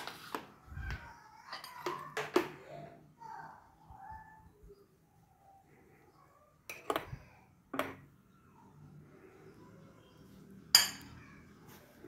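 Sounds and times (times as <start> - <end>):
metal spoon clinking on mug: 10.7 - 11.2.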